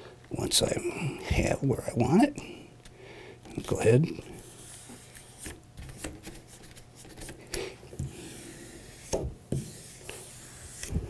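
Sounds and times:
palms swishing over paper: 4.4 - 7.4, 8.0 - 11.0
short scrapes on paper: 8.1 - 11.0.

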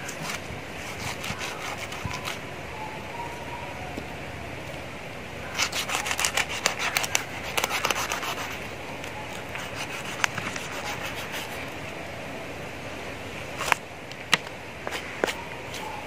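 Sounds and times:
knife scraping fish scales: 0.0 - 2.4, 5.5 - 8.7, 9.3 - 11.7.

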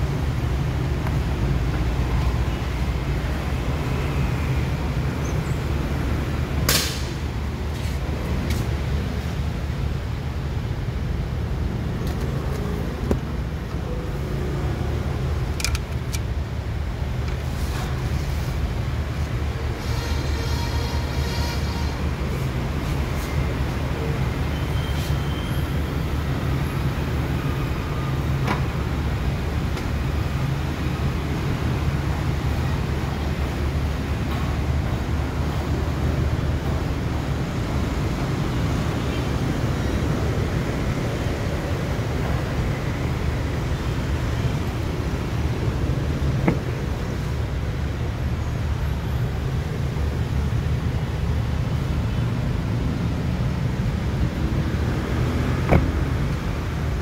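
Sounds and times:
power liftgate swinging open: 46.2 - 47.0, 55.5 - 56.3.

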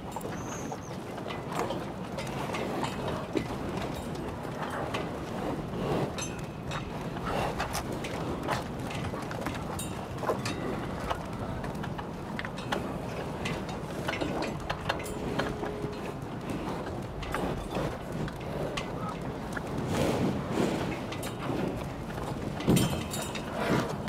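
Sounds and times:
cattle knocking against trough: 22.2 - 23.4.

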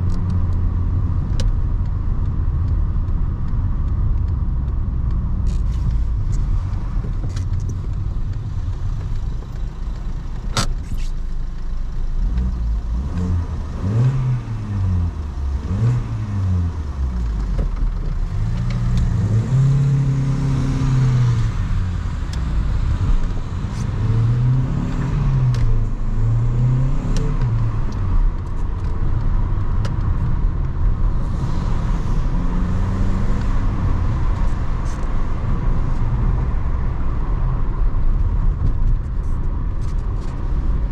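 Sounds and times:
road and tyre rumble: 0.0 - 40.9
car engine revving while driving: 12.1 - 40.9.

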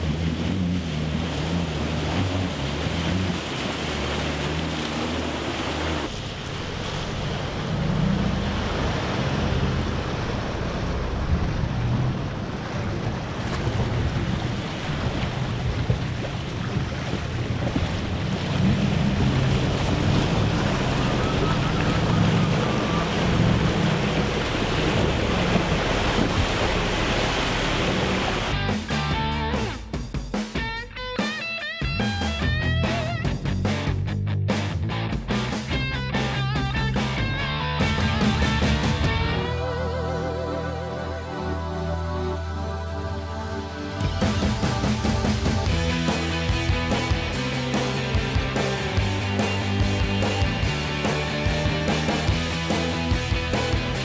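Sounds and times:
water splashing around wheels: 0.0 - 30.0, 35.0 - 39.8, 41.8 - 54.0
engine rumbling: 0.0 - 30.8, 31.9 - 54.0
wind buffeting microphone: 6.2 - 28.5.

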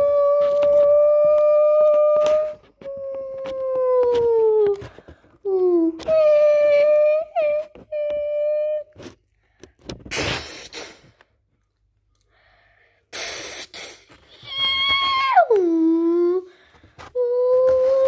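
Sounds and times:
child humming: 0.0 - 9.0, 14.4 - 18.0
loud breathy hisses: 10.1 - 11.2, 12.5 - 14.2.

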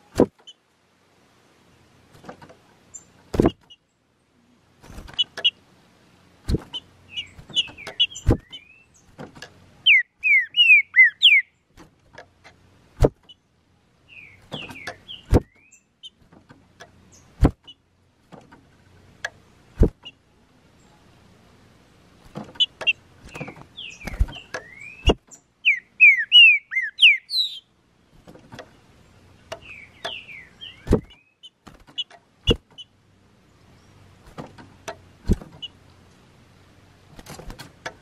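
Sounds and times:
bird giving short high calls: 9.8 - 11.5, 24.6 - 27.7
bird singing whistled phrase: 9.9 - 11.5, 24.6 - 27.7
sharp clicks or knocks: 34.2 - 35.7.

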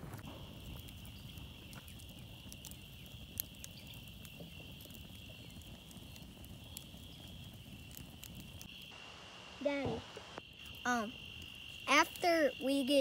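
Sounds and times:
campfire crackling: 0.0 - 13.0.

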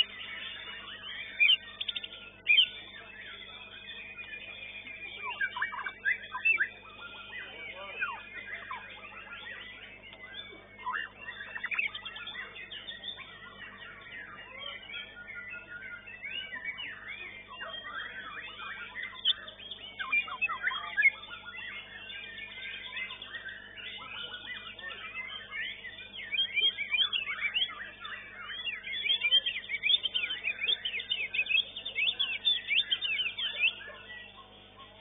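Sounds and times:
birds singing quick whistles: 0.0 - 35.0.

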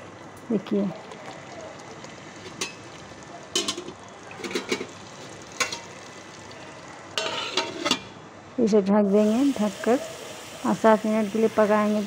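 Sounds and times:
chicken sizzling in a pot: 1.0 - 8.1, 9.1 - 12.0
spoon scraping a metal pot: 7.2 - 8.1.

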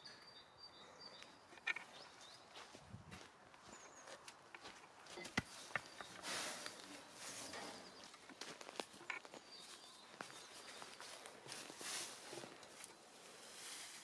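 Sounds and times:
footsteps on dry leaves: 5.5 - 14.0
wheelbarrow over leaf litter: 6.1 - 8.0, 10.4 - 14.0.

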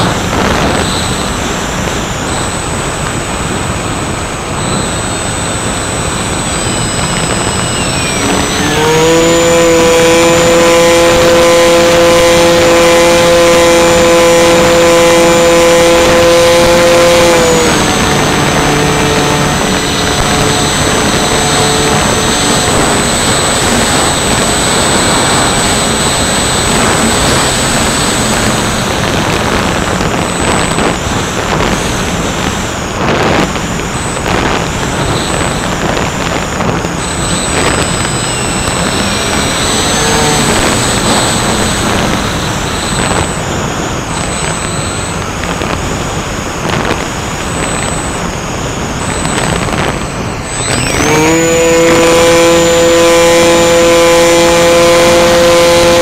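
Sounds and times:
gliding tones: 0.0 - 56.0
motors and propellers buzzing: 0.0 - 56.0
wind rushing over microphone: 0.0 - 56.0.

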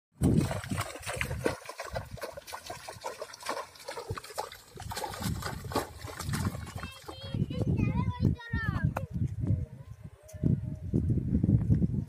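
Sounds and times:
water splashing and trickling: 0.1 - 7.8.

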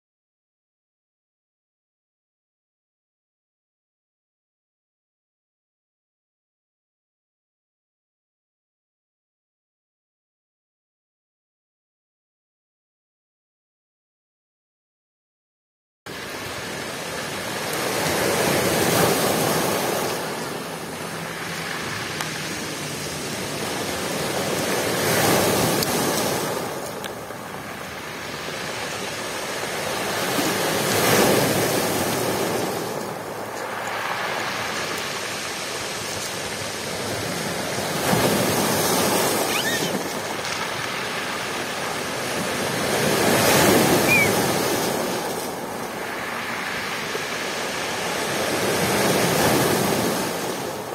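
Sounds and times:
sea waves breaking on pebbles: 16.1 - 50.9.

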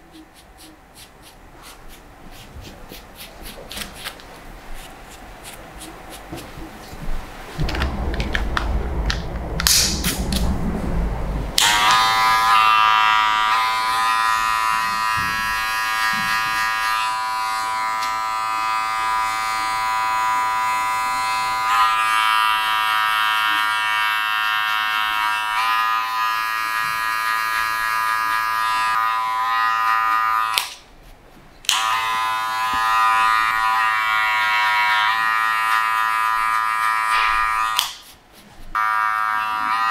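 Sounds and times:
rubbing and rustling: 0.0 - 11.0, 30.8 - 31.6, 38.0 - 38.8
electric hair clippers humming: 11.6 - 30.7, 31.7 - 38.0, 38.8 - 39.9.

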